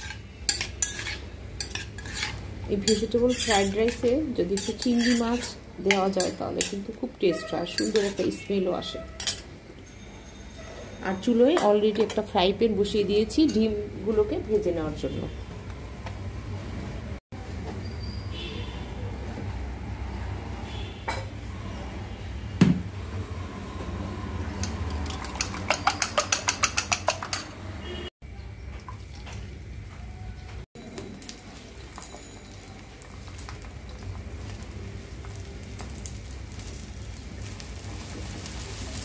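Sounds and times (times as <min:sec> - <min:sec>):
eggs sizzling in a pan: 0:00.0 - 0:09.5, 0:30.8 - 0:39.0
metal kitchen utensils clinking: 0:00.0 - 0:12.4, 0:13.3 - 0:13.8, 0:24.5 - 0:28.0.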